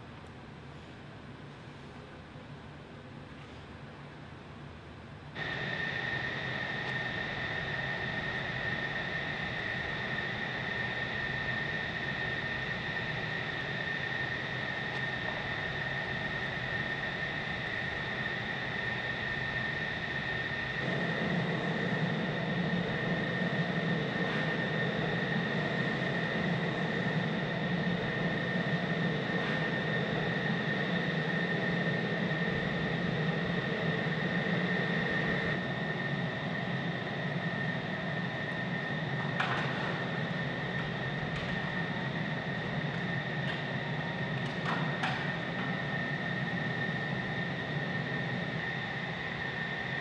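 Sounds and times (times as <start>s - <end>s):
turbine whine and roar: 0.0s - 50.0s.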